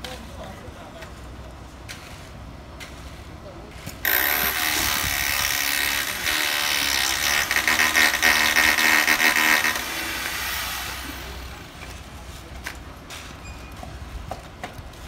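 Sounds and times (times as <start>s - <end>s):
concrete vibrator rattling whine: 4.1s - 11.2s.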